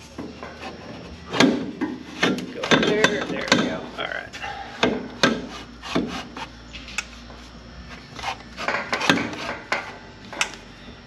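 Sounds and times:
metal rubbing and scraping: 5.3s - 10.0s.

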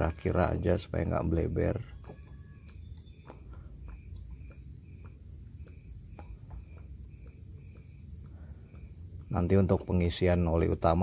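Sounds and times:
faint glugs and ticks: 0.0s - 11.0s
insect chirping: 0.0s - 11.0s
low background rumble: 0.0s - 11.0s.

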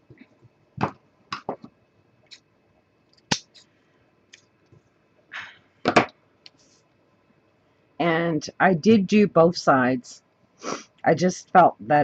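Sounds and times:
tools set down on tabletop: 5.8s - 6.2s.

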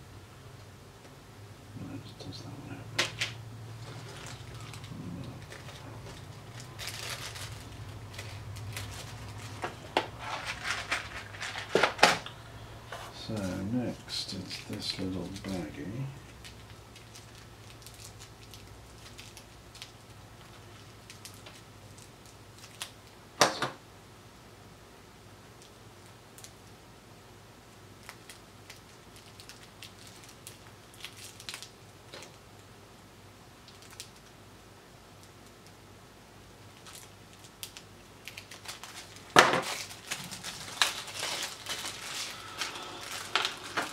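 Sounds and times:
low steady hum: 0.0s - 43.9s
plastic bag crinkling: 3.0s - 23.0s, 28.0s - 32.4s, 33.6s - 34.3s, 36.8s - 43.9s.

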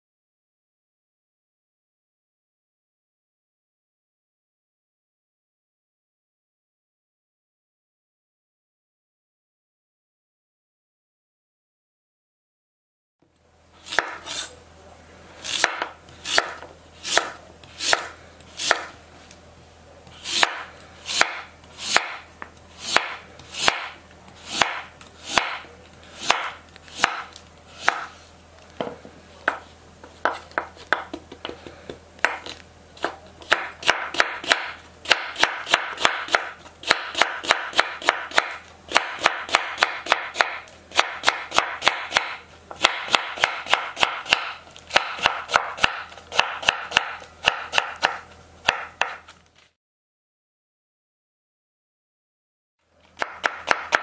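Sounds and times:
knife chopping on wooden board: 13.8s - 14.5s, 15.5s - 19.0s, 20.1s - 28.2s, 30.2s - 49.3s, 53.2s - 54.0s.

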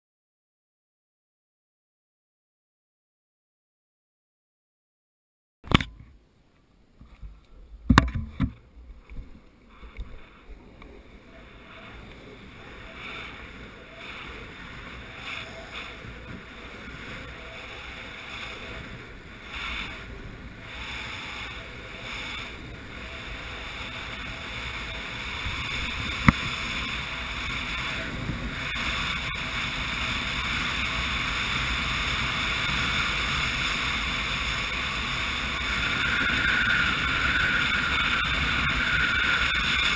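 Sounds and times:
sharp click: 5.6s - 6.1s
longboard wheels rolling on asphalt: 7.9s - 39.9s
wind on microphone: 11.5s - 39.9s.

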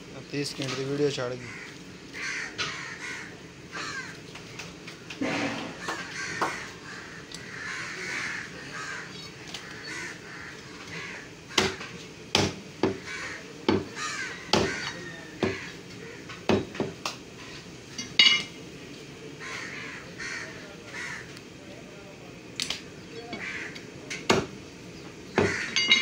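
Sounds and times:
cleaver chopping on wooden block: 14.5s - 14.8s.

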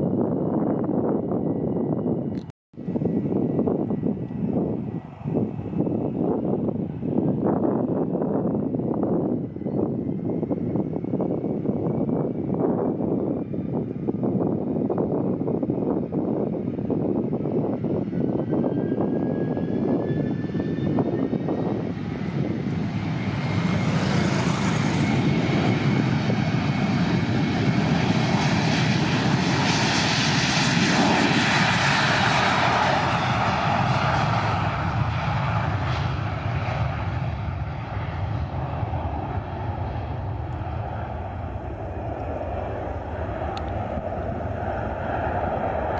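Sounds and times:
jet engine roar: 0.0s - 45.9s.

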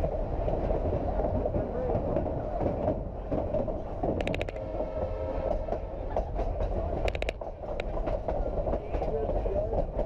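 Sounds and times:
train running gear rumbling: 0.0s - 10.0s
rapid clicking: 6.5s - 8.4s.

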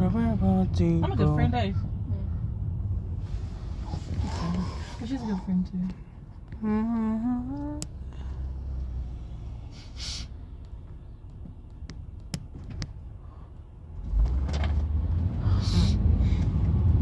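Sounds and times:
low steady rumble: 0.0s - 17.0s
person humming rising note: 6.6s - 8.0s
brief hiss: 9.7s - 10.3s.

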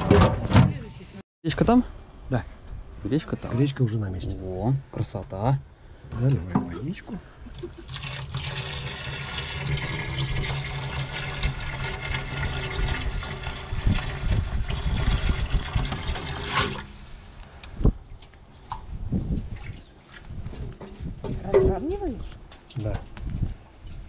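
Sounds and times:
water pouring and splashing: 7.5s - 20.8s.

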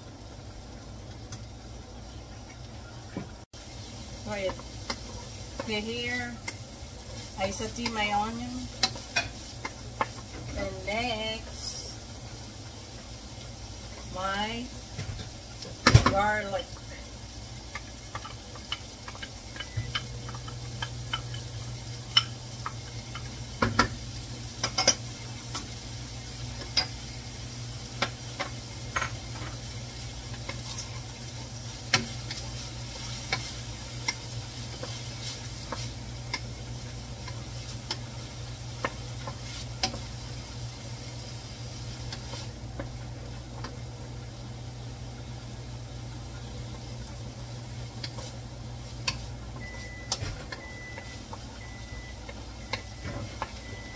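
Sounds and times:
onion and garlic sizzling in oil: 0.0s - 53.9s
wooden spoon knocking on a pan: 23.6s - 24.0s.

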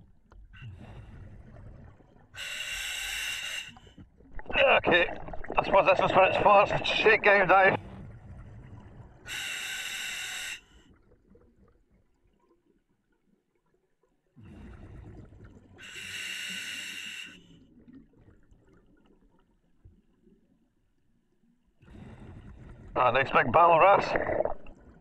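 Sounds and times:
exhaled bubbles rumbling: 0.6s - 2.4s, 4.2s - 9.3s, 14.4s - 15.8s, 21.9s - 25.0s
diver breathing through regulator: 2.4s - 4.0s, 9.2s - 10.9s, 15.8s - 17.6s.

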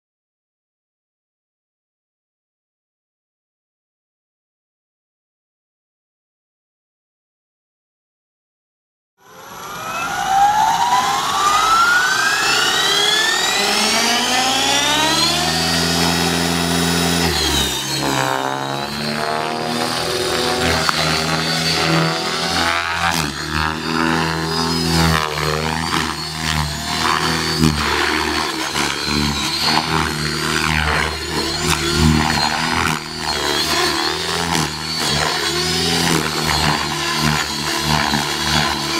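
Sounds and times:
electric helicopter motor whine: 9.2s - 38.9s
rotor sound: 9.4s - 38.9s.

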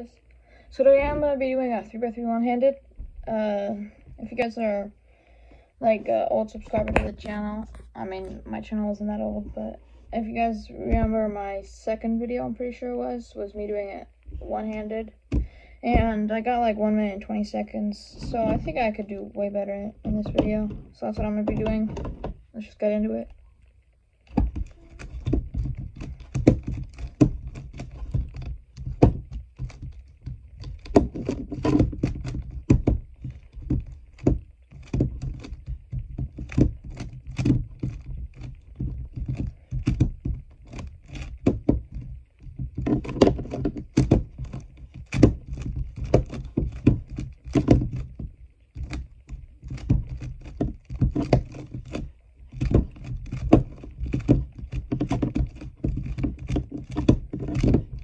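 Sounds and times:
dull thunks: 15.3s - 16.4s, 24.3s - 58.0s.

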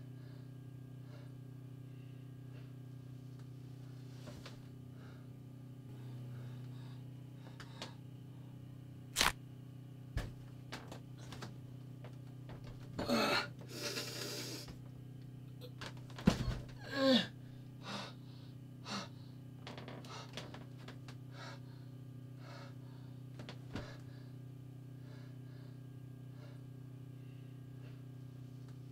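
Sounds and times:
low hum: 0.0s - 28.9s
man gasping and groaning: 16.8s - 18.2s.

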